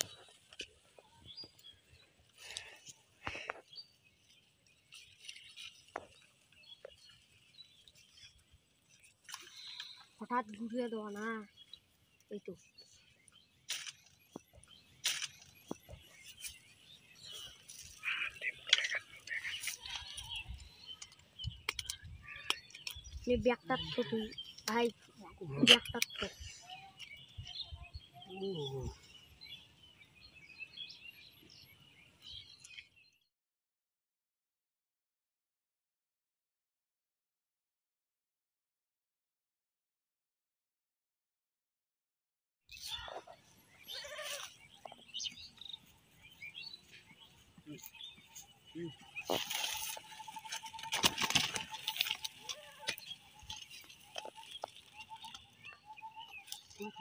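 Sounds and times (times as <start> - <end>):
faint bird chirp: 0.0 - 33.2
fishing tackle clicks and rustles: 49.2 - 55.6.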